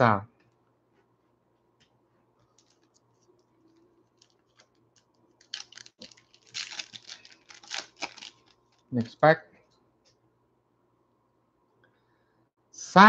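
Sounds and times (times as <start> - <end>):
foil wrapper crinkling and tearing: 4.1 - 8.8.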